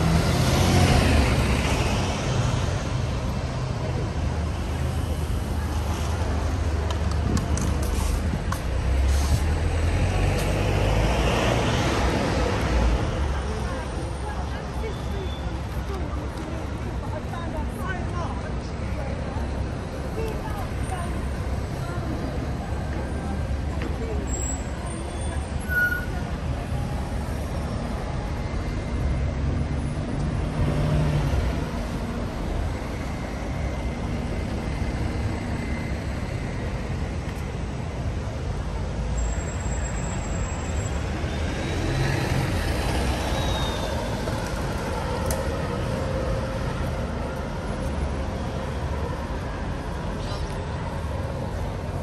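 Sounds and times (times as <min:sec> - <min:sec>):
bus diesel engine rumble: 0:00.0 - 0:52.0.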